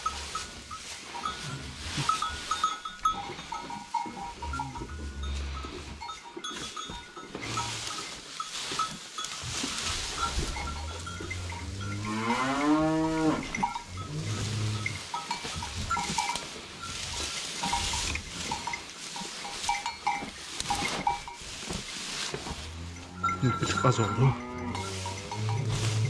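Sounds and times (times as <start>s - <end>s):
dry hay rustling: 0.0s - 26.0s
cow mooing: 10.6s - 15.1s, 22.7s - 26.0s.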